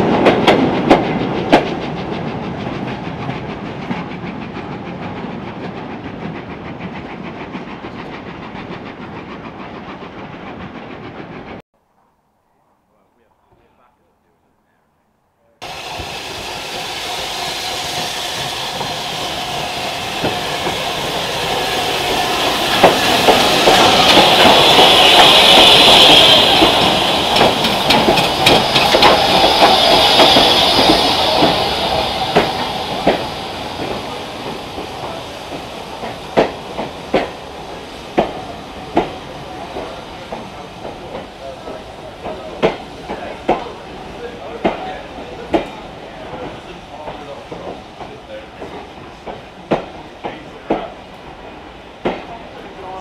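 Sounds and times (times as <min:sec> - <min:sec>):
passing train rumble: 0:00.0 - 0:11.6, 0:15.6 - 0:53.0
steam hissing: 0:15.6 - 0:53.0
wheels clicking over rail joints: 0:22.0 - 0:50.9.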